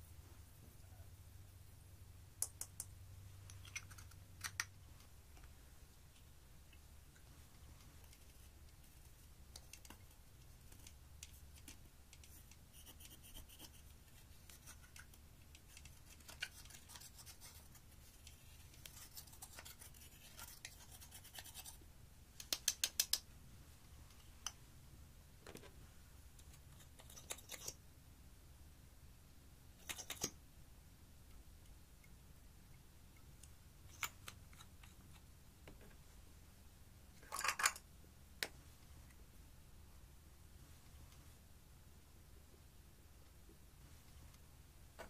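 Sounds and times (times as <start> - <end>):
brush scratching eyeshadow: 8.0 - 21.8.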